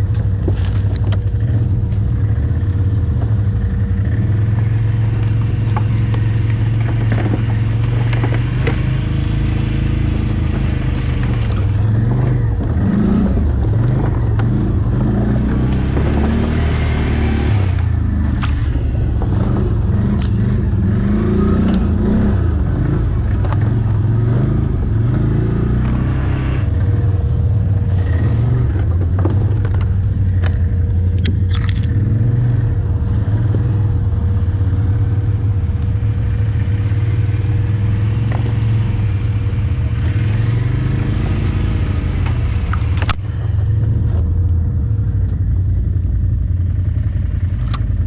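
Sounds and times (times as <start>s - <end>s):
quad engine running: 0.0s - 48.0s
knocks and scrapes through brush: 0.2s - 2.1s, 5.0s - 12.8s.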